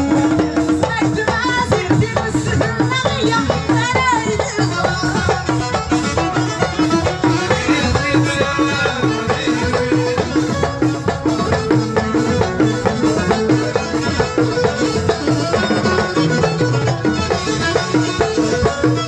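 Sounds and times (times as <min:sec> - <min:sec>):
steady drum rhythm: 0:00.0 - 0:19.0
stringed instrument: 0:00.0 - 0:19.0.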